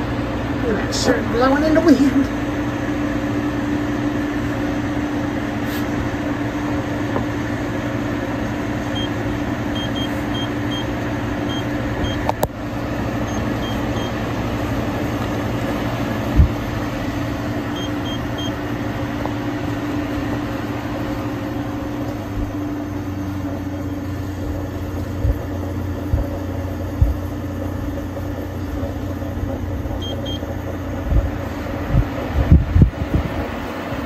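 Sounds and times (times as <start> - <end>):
air conditioner humming: 0.0 - 34.0
control panel beeps: 8.8 - 10.9, 11.5 - 12.3, 13.2 - 14.2, 17.7 - 18.6, 30.0 - 30.4
dull low thumps: 16.2 - 16.8, 24.5 - 27.4, 31.0 - 33.4.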